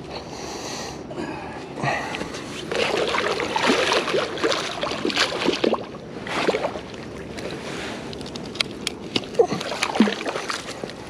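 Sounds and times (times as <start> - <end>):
fish thrashing and splashing in water: 2.7 - 7.6, 9.2 - 11.0.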